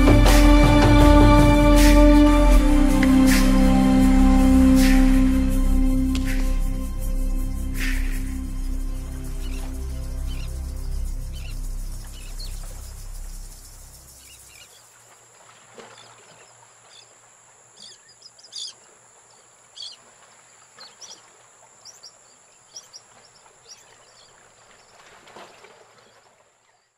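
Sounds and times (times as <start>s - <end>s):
background music: 0.0s - 14.4s
high-pitched insect drone: 0.1s - 14.8s
birds chirping: 6.1s - 15.1s, 15.8s - 26.9s.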